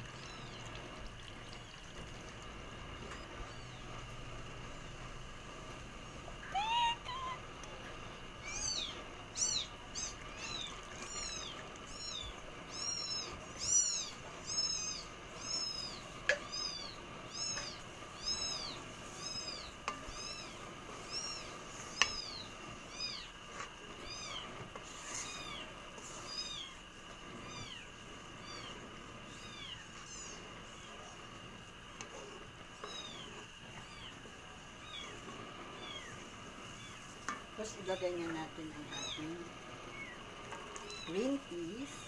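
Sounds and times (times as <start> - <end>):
high-pitched animal calls: 6.4 - 7.4.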